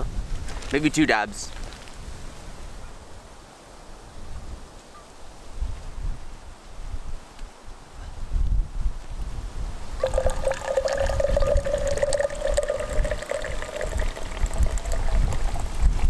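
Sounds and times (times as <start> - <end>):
coffee pouring into tumbler: 10.0 - 16.0.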